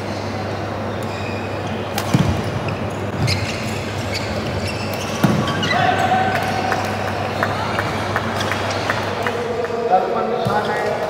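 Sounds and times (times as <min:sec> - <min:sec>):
shoe squeaks: 0:01.0 - 0:06.0.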